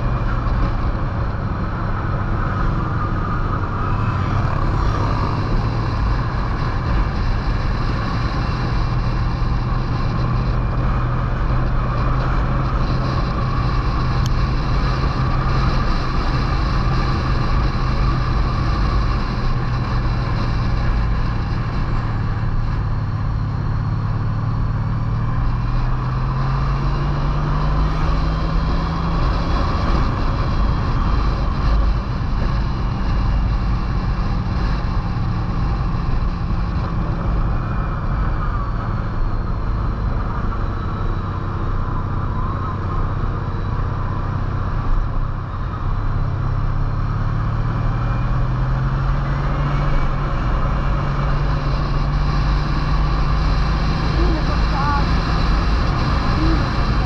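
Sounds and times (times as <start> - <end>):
wind noise rushing: 0.0 - 41.3
motorcycle engine running: 0.0 - 57.0.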